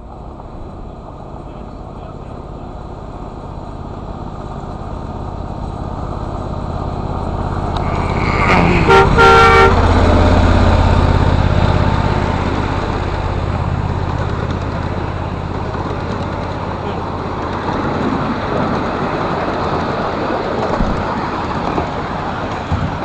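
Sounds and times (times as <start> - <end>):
model train rumbling past: 0.0 - 23.0
locomotive horn: 7.7 - 10.6.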